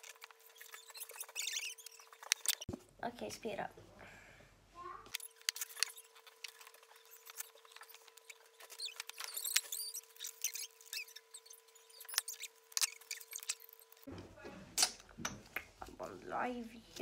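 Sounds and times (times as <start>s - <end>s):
high squeaky chirps: 0.0s - 2.7s, 5.2s - 14.1s.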